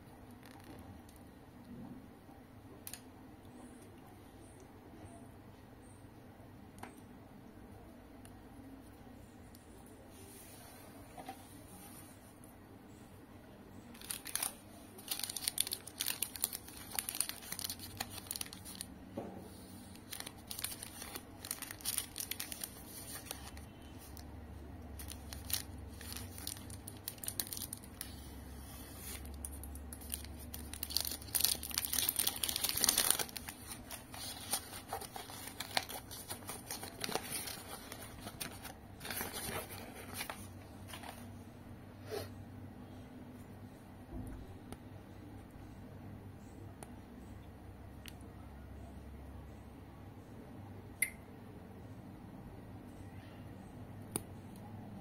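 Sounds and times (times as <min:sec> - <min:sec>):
wrapper crinkling: 0:13.9 - 0:18.9, 0:19.8 - 0:24.2, 0:24.9 - 0:41.3.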